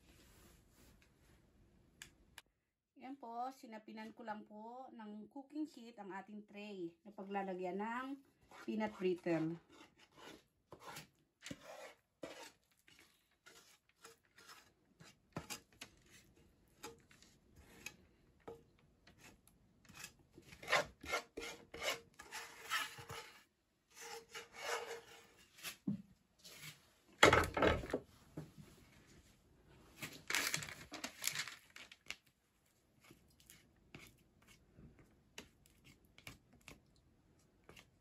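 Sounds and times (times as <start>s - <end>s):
wooden spatula scraping a pan: 8.2s - 18.0s, 19.1s - 25.8s.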